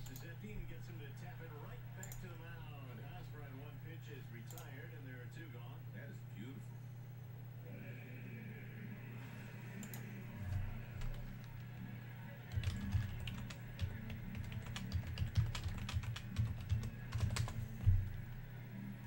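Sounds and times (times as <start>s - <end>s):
steady low hum: 0.0s - 19.0s
keyboard typing: 9.7s - 11.8s, 12.5s - 18.4s.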